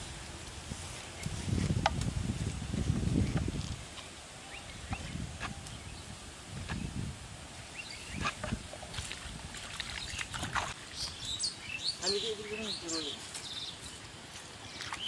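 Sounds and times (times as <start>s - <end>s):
wind rumbling on microphone: 0.0s - 11.5s
bird chirps: 10.9s - 15.0s.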